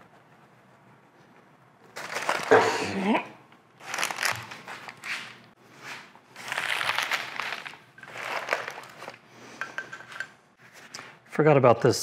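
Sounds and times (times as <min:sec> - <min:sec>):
paper rustling and crinkling: 0:01.9 - 0:02.9, 0:03.8 - 0:09.2.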